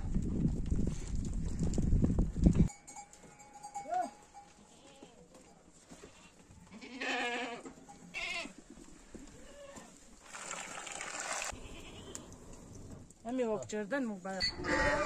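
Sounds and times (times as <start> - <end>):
goats bleating: 4.6 - 5.2, 6.0 - 8.6.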